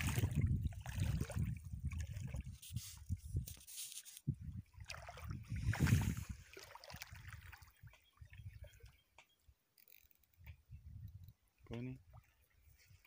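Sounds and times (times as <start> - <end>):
water sloshing and splashing: 0.0 - 9.9.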